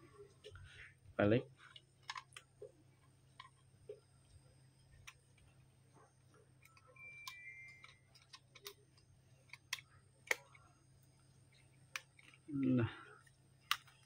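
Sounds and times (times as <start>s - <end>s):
small plastic and metal clicks: 1.7s - 2.5s, 6.6s - 10.7s, 11.8s - 14.0s
faint high-pitched two-note tone: 6.8s - 8.0s.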